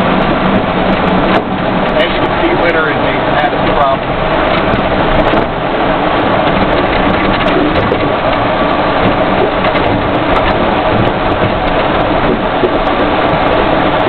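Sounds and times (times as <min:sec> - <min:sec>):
vehicle engine and tyre noise: 0:00.0 - 0:14.0
clicks and rattles: 0:06.4 - 0:13.1.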